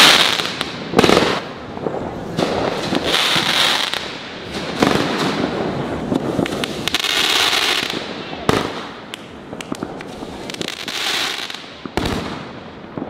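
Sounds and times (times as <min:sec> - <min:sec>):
fireworks bangs: 0:00.0 - 0:13.0
fireworks crackling: 0:00.0 - 0:13.0.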